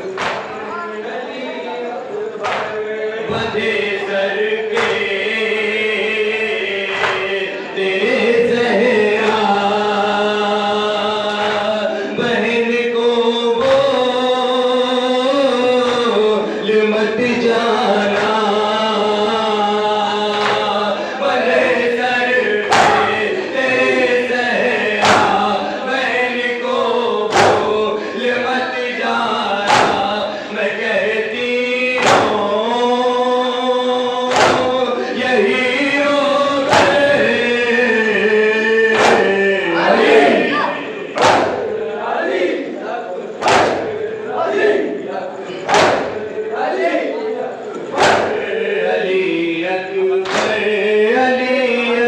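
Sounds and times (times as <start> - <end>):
men chanting through a microphone: 0.0 - 52.0
sharp strikes: 34.3 - 34.8, 38.9 - 39.4, 41.2 - 41.8, 43.4 - 44.0, 45.7 - 46.3.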